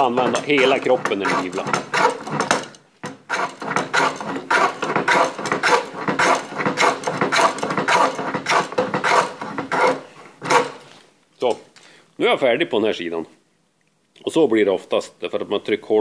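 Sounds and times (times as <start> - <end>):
hand plane shaving wood: 0.0 - 10.9.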